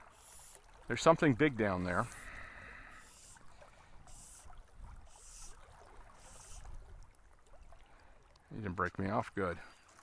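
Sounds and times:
fishing line hissing through guides: 0.0s - 0.8s, 1.7s - 6.9s
river flow rumble: 0.0s - 10.0s.

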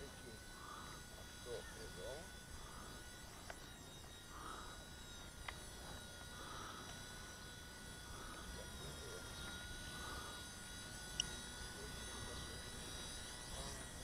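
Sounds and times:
rc helicopter high-pitched whine: 0.0s - 14.0s.

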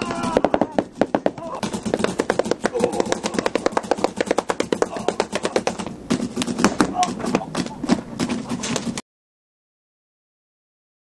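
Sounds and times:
voices shouting: 0.0s - 1.8s
paintball marker firing: 0.0s - 9.0s.

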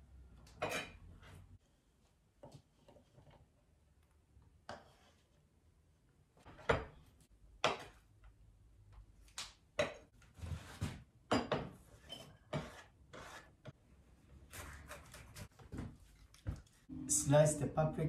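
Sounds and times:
knife slicing and scraping: 11.9s - 13.6s, 14.5s - 16.3s.

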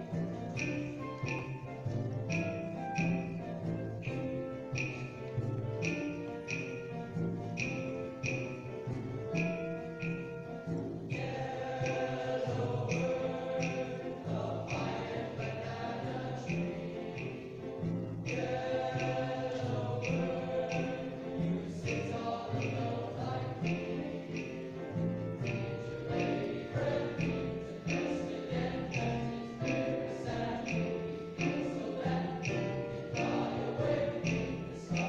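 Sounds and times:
male chorus singing in harmony: 11.1s - 35.0s.

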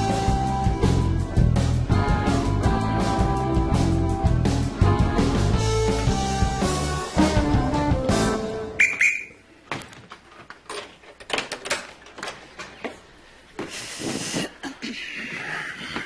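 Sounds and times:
referee's whistle blast: 8.8s - 9.4s.

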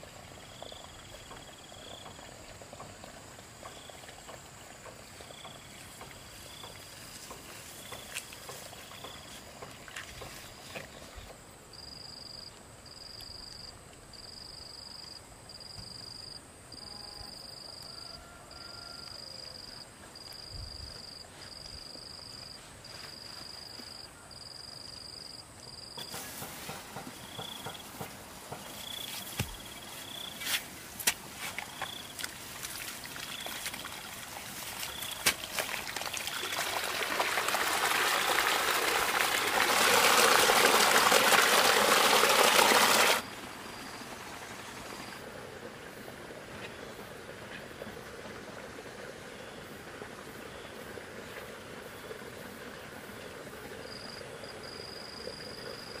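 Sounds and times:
insect chirping: 0.0s - 56.0s
trickling splashing water: 31.0s - 43.2s.

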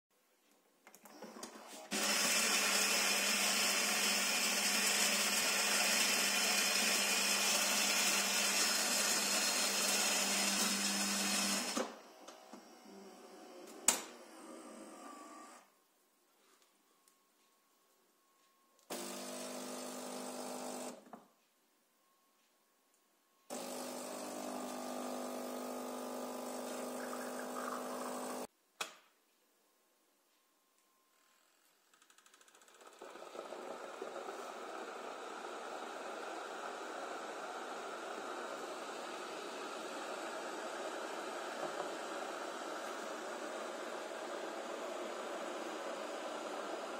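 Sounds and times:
coffee grinder grinding beans: 1.7s - 11.8s, 18.9s - 21.0s, 23.5s - 28.5s, 32.0s - 46.9s
espresso machine pump humming: 1.9s - 11.8s, 18.9s - 20.9s, 23.5s - 28.5s, 32.8s - 46.9s.

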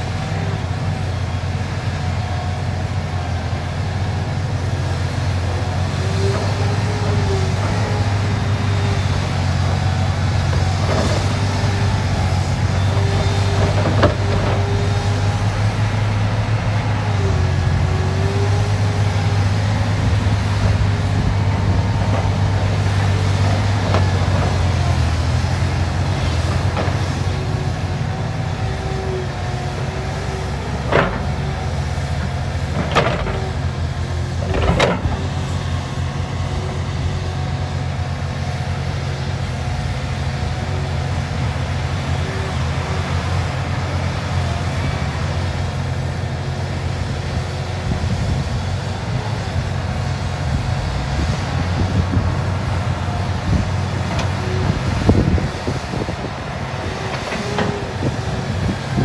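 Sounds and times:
excavator diesel engine: 0.0s - 59.0s
hydraulic whine: 48.0s - 59.0s.

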